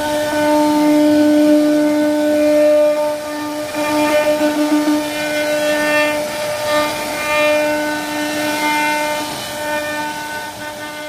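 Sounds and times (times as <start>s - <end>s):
wood router spindle whining: 0.0s - 11.0s
bit cutting wood hiss: 2.9s - 11.0s.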